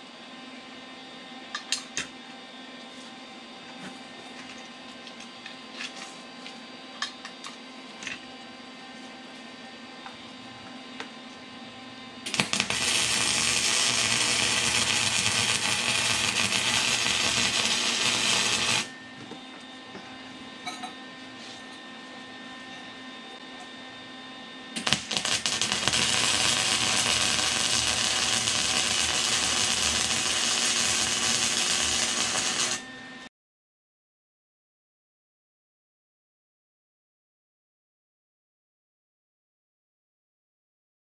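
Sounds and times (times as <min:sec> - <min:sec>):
welding arc crackling: 0:12.3 - 0:18.9, 0:24.8 - 0:32.8.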